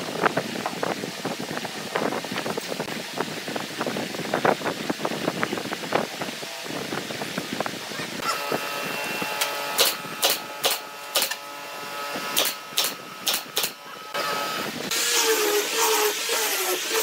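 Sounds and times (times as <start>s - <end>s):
rotary sander on wood: 8.0s - 17.0s
pneumatic nail gun firing: 9.3s - 11.5s, 12.1s - 17.0s.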